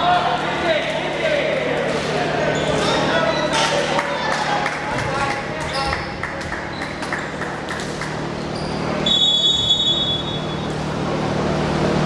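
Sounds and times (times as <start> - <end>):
gym hall hum and echo: 0.0 - 12.0
referee's whistle: 9.0 - 10.6.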